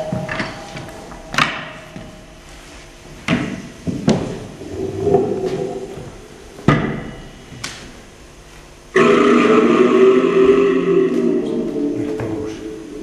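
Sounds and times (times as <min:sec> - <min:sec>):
low ringing tone: 0:00.0 - 0:03.2, 0:04.6 - 0:07.6, 0:08.9 - 0:13.0.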